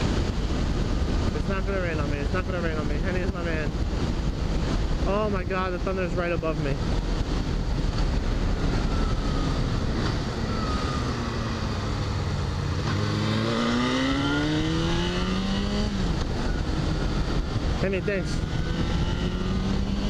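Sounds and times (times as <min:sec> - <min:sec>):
wind rushing over microphone: 0:00.0 - 0:20.0
motorcycle engine revving: 0:06.8 - 0:20.0.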